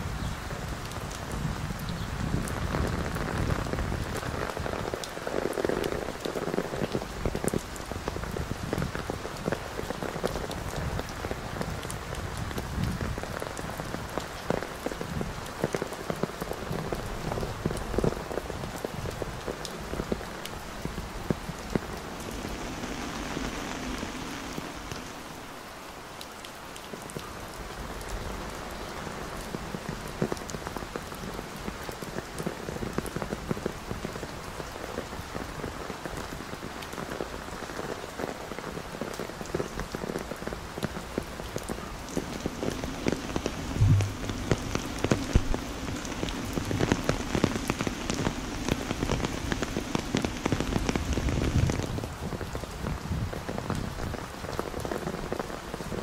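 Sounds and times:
heavy rain falling: 0.0s - 56.0s
sharp raindrop ticks: 26.1s - 56.0s.

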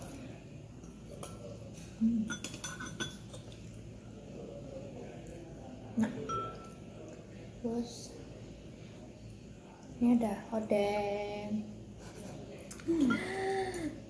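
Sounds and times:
cutlery clinking on ceramic bowls: 0.8s - 3.6s, 6.0s - 6.8s.

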